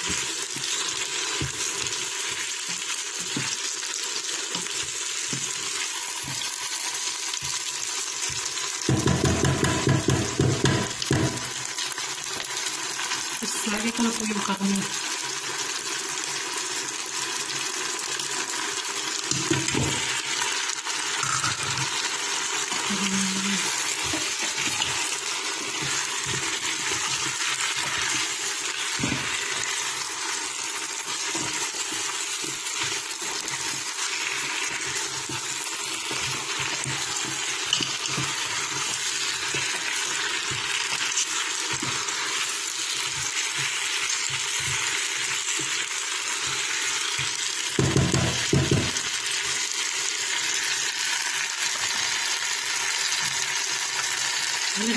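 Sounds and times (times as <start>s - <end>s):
food sizzling in a pot: 0.0s - 54.9s
spatula knocking against pot: 8.9s - 11.5s, 47.2s - 49.0s.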